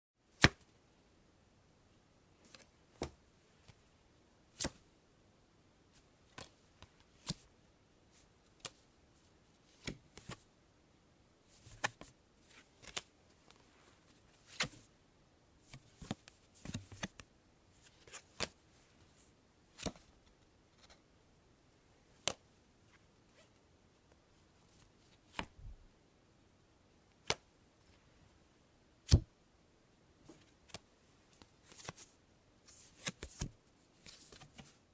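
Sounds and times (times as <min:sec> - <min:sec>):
playing cards snapping and flicking: 0:12.8 - 0:13.1.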